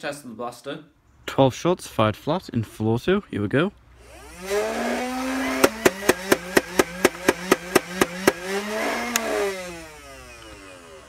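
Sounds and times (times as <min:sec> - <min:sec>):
flywheel motors whining: 0:04.0 - 0:11.0
toy blaster shots: 0:05.0 - 0:09.5.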